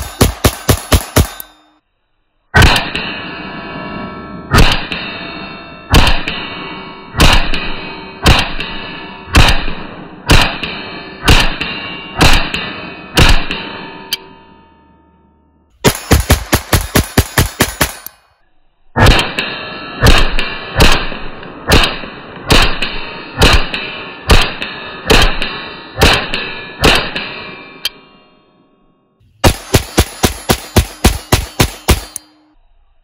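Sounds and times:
pistol shots: 0.0 - 1.5, 5.9 - 6.3, 7.2 - 7.6, 9.4 - 11.6, 12.2 - 12.6, 15.8 - 18.2, 20.0 - 27.2, 29.4 - 32.3.

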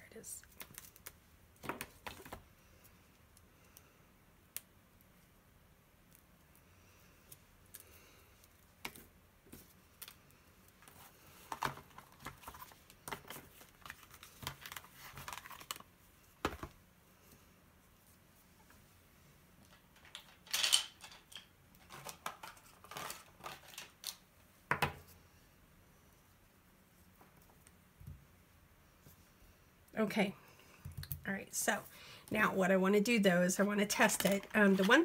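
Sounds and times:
plastic packaging rustling: 10.8 - 16.8, 19.7 - 24.2, 34.0 - 35.0.

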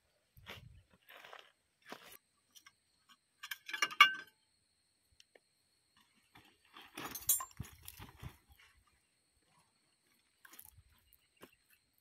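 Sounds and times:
metal pieces clinking: 7.0 - 7.6.

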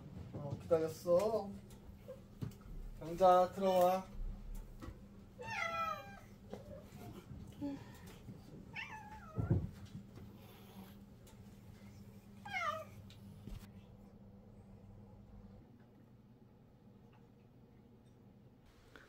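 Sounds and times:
cat meowing: 5.4 - 6.8, 8.7 - 9.6, 12.4 - 13.0.

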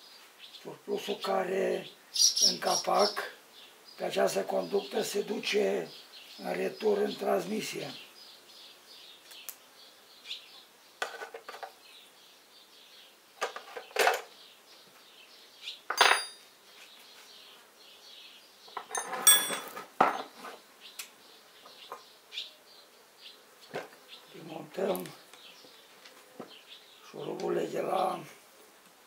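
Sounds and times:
faint insect buzzing: 0.0 - 19.0, 19.8 - 29.0
metal tools clanking on workbench: 15.9 - 16.4, 18.8 - 20.3.

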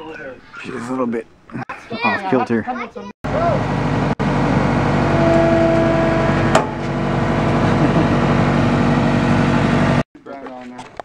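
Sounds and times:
high whine: 3.3 - 10.0
loader engine running: 3.3 - 10.0
sharp knock: 6.5 - 6.9.

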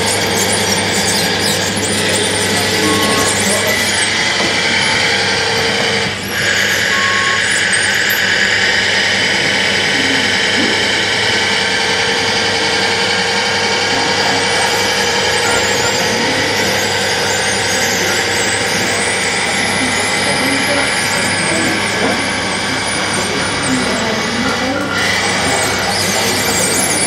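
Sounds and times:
electric model motors whining: 0.0 - 27.0.

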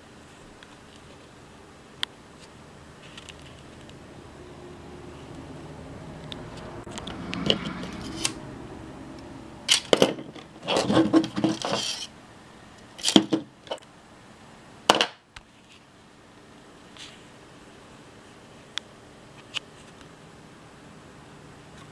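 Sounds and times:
rattling clatter of parts: 9.7 - 12.1.

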